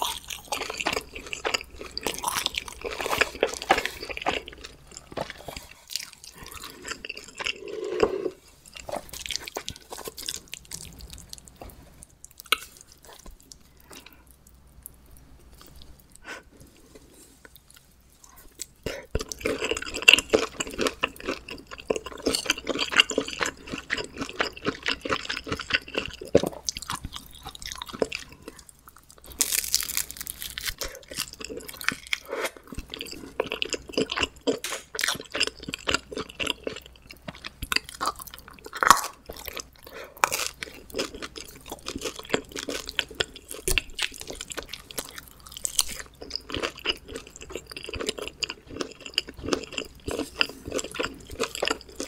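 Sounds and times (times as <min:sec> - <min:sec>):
crunchy chewing: 0:00.0 - 0:14.5, 0:16.8 - 0:52.0.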